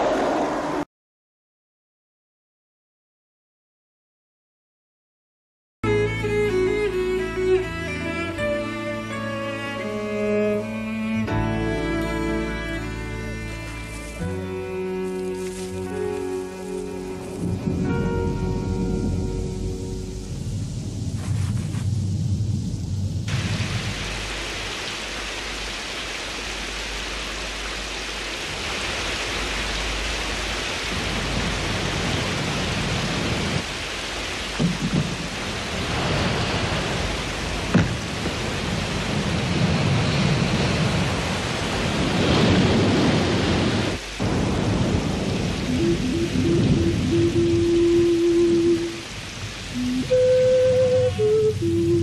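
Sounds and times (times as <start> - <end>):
thunder: 0.0 - 0.9, 17.4 - 24.7, 34.6 - 47.7
heavy rain: 5.8 - 52.0.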